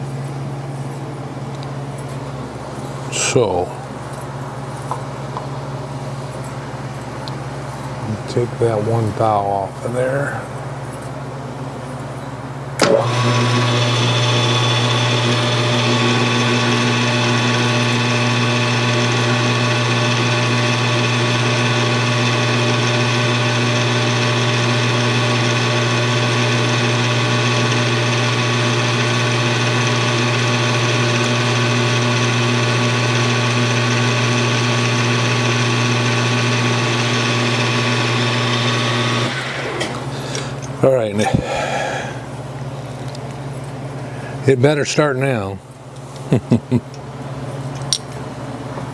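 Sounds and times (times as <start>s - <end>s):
lathe motor hum and whine: 12.8s - 40.7s.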